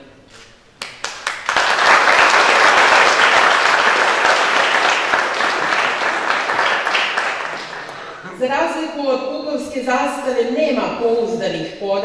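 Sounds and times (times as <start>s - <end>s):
audience applauding: 0.8s - 8.3s.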